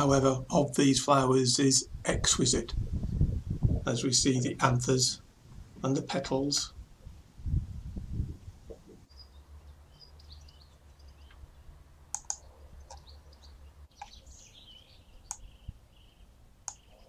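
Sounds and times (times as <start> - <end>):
birds chirping: 8.7 - 17.0
sharp clicks: 12.1 - 13.1, 15.3 - 15.5, 16.6 - 16.9.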